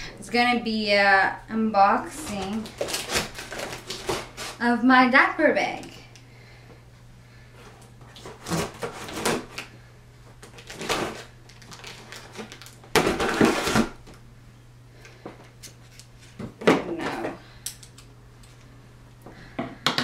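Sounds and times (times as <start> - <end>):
scissors cutting packing tape: 2.3 - 4.6, 8.2 - 9.6, 10.4 - 14.0.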